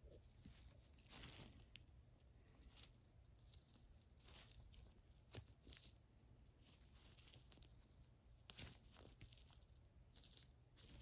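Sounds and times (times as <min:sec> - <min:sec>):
rustling of gloves: 0:00.0 - 0:11.0.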